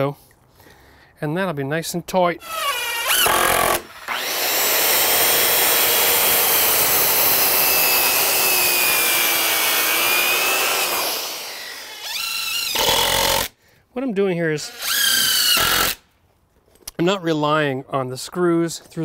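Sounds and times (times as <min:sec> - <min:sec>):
circular saw cutting wood: 0:02.4 - 0:13.5, 0:14.6 - 0:16.0.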